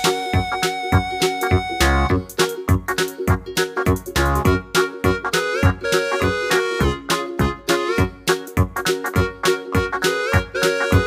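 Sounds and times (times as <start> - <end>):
upbeat background music: 0.0 - 11.0.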